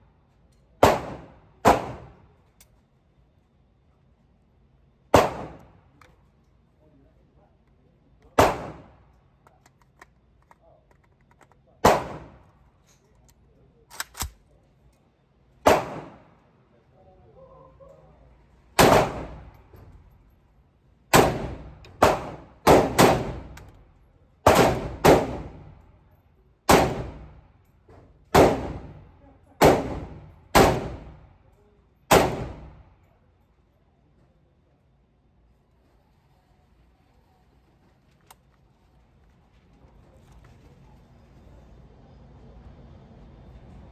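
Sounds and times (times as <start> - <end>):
rifle shots echoing indoors: 0.8 - 2.4, 5.0 - 5.8, 8.3 - 9.2, 11.8 - 12.5, 15.6 - 16.4, 18.7 - 19.6, 21.1 - 23.8, 24.4 - 25.8, 26.6 - 27.4, 28.3 - 31.4, 32.0 - 33.1.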